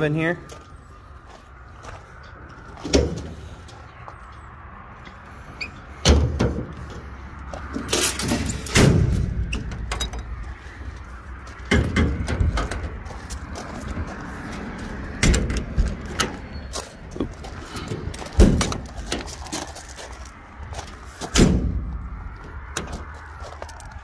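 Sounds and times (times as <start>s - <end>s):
metal door banging shut: 6.0s - 6.7s, 7.9s - 10.3s, 11.7s - 13.0s, 15.2s - 16.4s, 18.4s - 19.2s, 21.3s - 21.8s.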